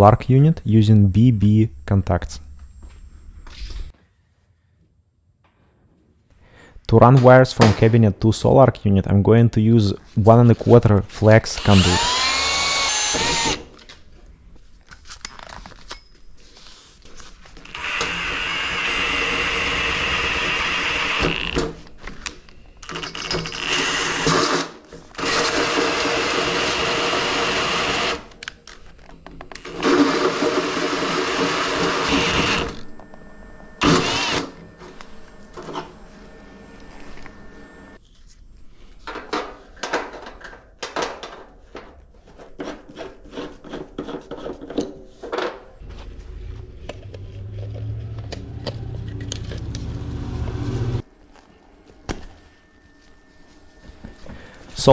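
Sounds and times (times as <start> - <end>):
drill cutting sheet metal: 11.5 - 13.7, 17.6 - 21.6, 22.8 - 28.3, 29.5 - 38.0.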